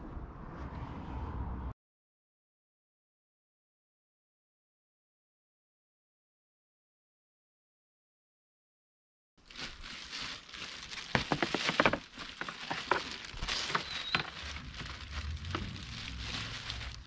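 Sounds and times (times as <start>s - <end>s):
plastic wrapping crinkling: 9.4s - 17.0s.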